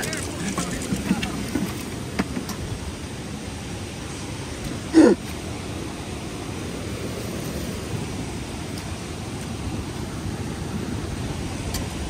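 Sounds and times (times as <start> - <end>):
water pouring over a spillway: 0.0 - 3.7.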